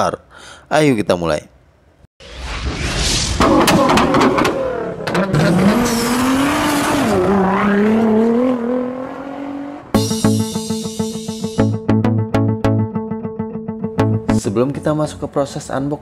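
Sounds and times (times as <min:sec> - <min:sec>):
racing car engine revving: 0:03.4 - 0:10.0
plucked string music: 0:10.0 - 0:14.9.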